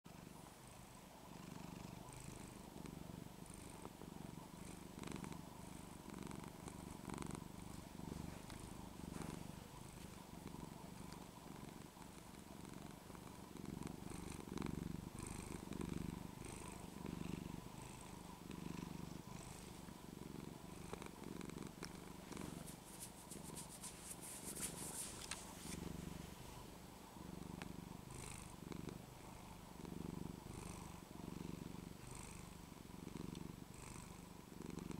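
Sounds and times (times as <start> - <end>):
cat purring: 0.1 - 34.9
brief rustle: 22.9 - 25.8.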